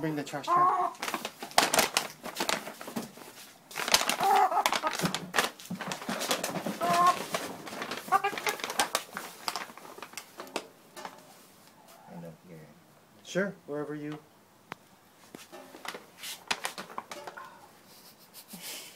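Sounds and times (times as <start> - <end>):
hen short calls: 0.4 - 1.0, 4.2 - 4.9, 6.8 - 7.2, 8.1 - 8.6
paper bag crackling: 0.8 - 11.4, 15.3 - 17.6.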